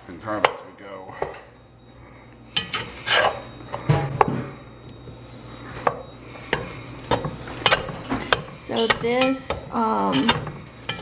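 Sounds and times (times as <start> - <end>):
metal spatula scraping a pot: 2.6 - 3.5, 7.6 - 11.0.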